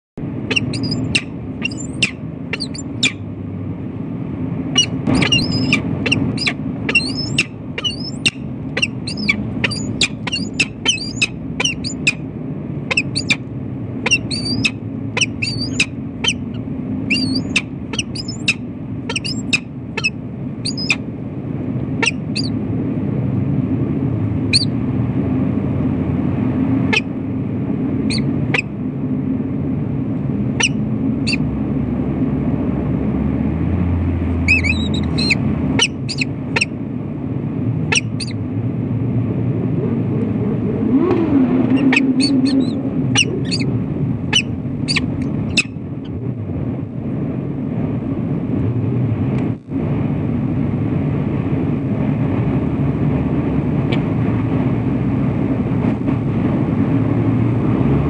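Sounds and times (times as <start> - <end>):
low hum: 0.2 - 58.0
falcon harsh calls: 0.5 - 3.2, 4.8 - 12.2, 12.9 - 13.4, 14.1 - 20.1, 20.7 - 21.0, 22.0 - 22.5, 34.5 - 36.7, 41.8 - 43.7.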